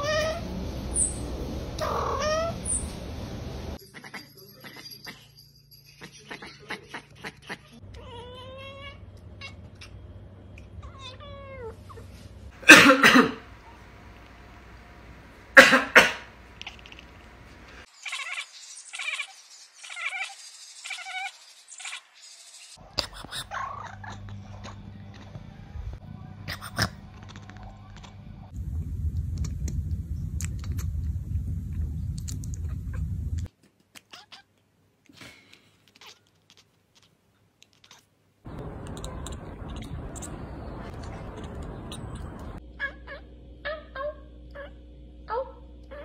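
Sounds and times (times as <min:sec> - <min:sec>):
cats chattering and chirping: 0:00.0 - 0:03.1, 0:03.7 - 0:12.3, 0:16.5 - 0:25.2, 0:32.1 - 0:34.6, 0:35.2 - 0:44.8
person coughing loudly: 0:12.6 - 0:13.4, 0:15.6 - 0:16.3.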